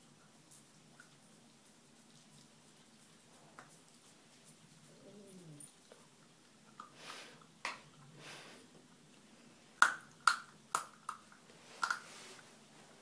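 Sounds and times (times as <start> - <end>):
puppy gnawing wetly: 0.1 - 8.2.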